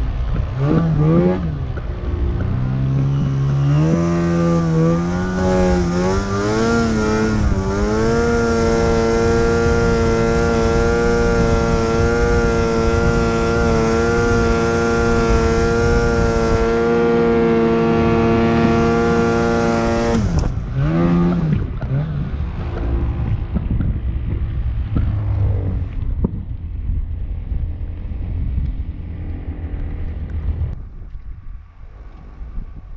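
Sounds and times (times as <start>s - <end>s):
snowmobile engine revving: 0.0s - 26.0s.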